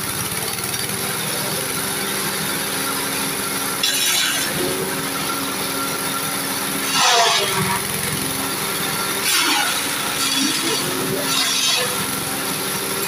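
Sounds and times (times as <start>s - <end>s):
forage chopper engines running: 0.0s - 13.0s
branches shredded in blades: 3.8s - 5.0s, 6.8s - 13.0s.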